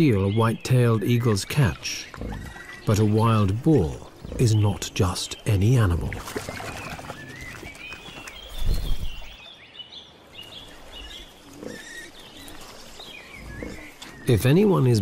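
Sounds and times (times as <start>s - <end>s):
birds chirping: 0.0s - 15.0s
wild boars grunting: 1.2s - 7.9s, 11.0s - 14.5s.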